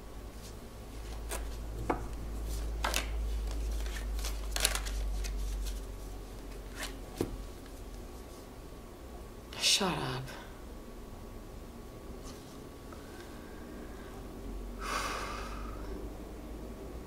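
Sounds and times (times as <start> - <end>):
cards being shuffled: 0.4 - 7.8.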